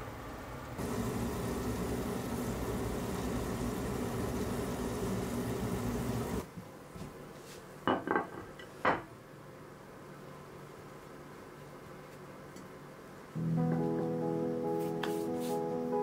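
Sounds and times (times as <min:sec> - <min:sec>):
hot oil sizzling: 0:00.8 - 0:06.4.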